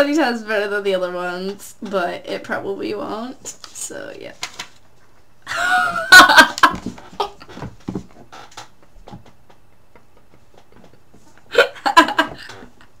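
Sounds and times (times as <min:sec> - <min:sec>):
girl laughing hard: 0:05.5 - 0:07.6, 0:10.8 - 0:13.0.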